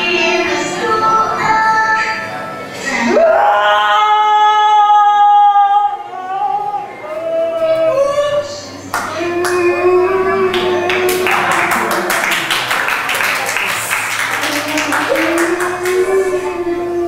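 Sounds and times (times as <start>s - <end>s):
woman singing slowly: 2.9s - 11.3s, 14.3s - 17.0s.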